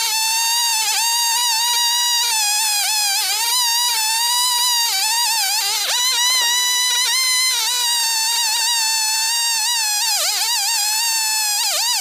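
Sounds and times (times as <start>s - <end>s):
chainsaw cutting through log: 0.0s - 12.0s.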